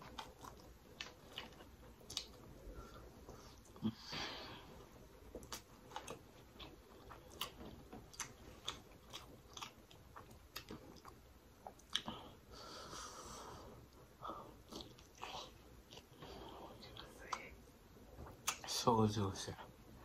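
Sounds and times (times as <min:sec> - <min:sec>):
biting and wet chewing: 0:00.0 - 0:03.8, 0:05.0 - 0:12.4, 0:13.8 - 0:17.4
mouth clicks and smacks: 0:07.0 - 0:12.2, 0:18.2 - 0:18.7.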